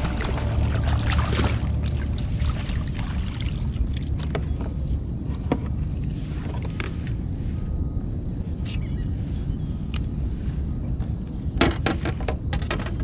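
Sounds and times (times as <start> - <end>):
water splashing and streaming: 0.0 - 4.5
low rumble: 0.0 - 11.5.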